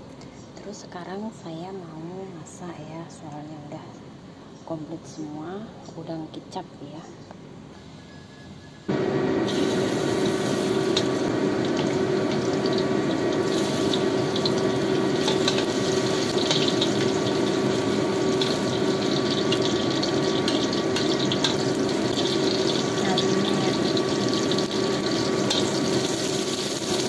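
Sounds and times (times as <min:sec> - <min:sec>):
steady hum: 0:08.9 - 0:25.8
hot oil sizzling in a wok: 0:08.9 - 0:27.0.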